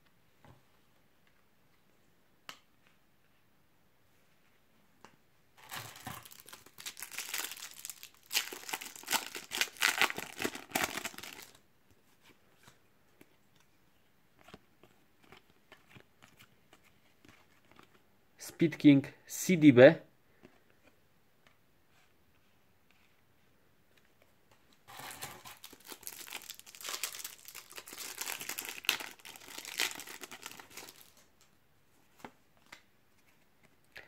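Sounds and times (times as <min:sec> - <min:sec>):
card wrapper crinkling: 0:05.6 - 0:11.6, 0:24.9 - 0:31.3.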